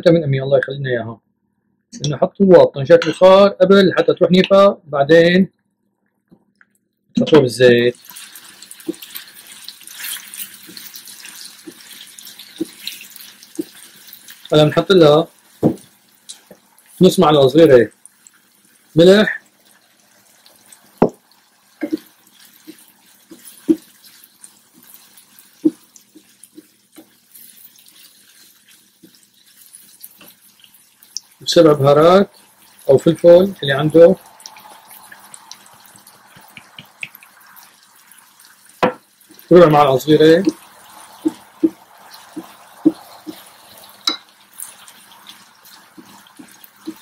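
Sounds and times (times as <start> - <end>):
faint sizzle: 7.3 - 47.0
wooden spatula scraping a pan: 8.0 - 17.1, 20.4 - 47.0.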